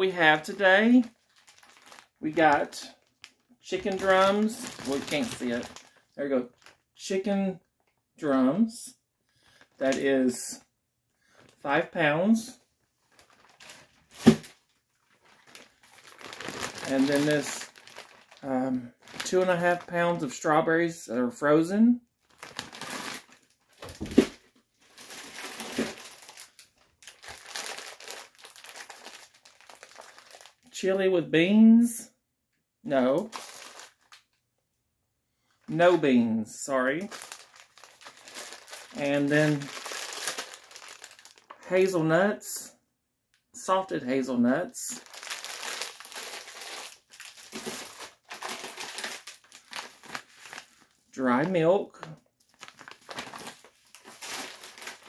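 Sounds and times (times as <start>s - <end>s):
plastic bags crinkling: 0.0s - 6.9s, 13.0s - 20.0s, 22.2s - 30.7s, 33.2s - 34.3s, 36.8s - 41.7s, 44.9s - 55.0s.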